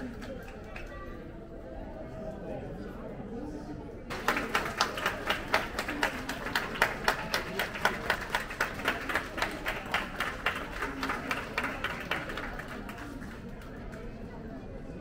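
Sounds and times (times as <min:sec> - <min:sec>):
crowd applauding: 0:04.1 - 0:14.0.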